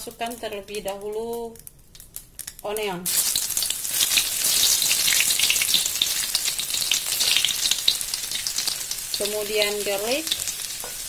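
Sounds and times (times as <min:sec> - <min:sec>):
shallots sizzling in hot oil: 0:02.4 - 0:11.0.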